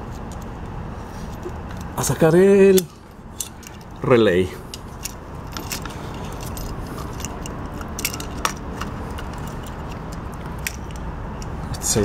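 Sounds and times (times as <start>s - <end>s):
screwdriver clicking and scraping: 4.7s - 11.6s.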